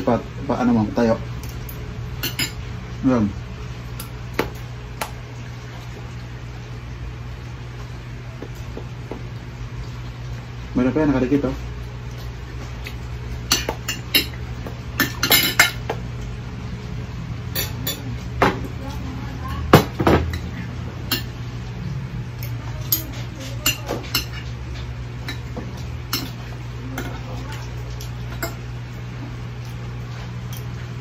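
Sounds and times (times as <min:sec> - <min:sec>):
cutlery clinking on plates: 0:15.0 - 0:16.0, 0:17.5 - 0:18.6, 0:25.2 - 0:27.2.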